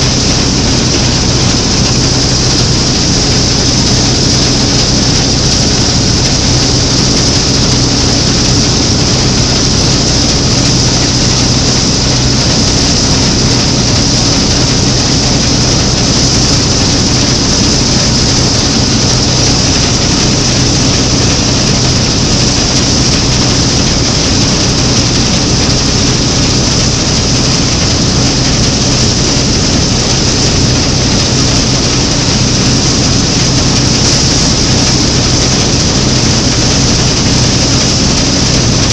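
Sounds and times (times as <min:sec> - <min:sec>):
combine harvester engine running: 0:00.0 - 0:38.9.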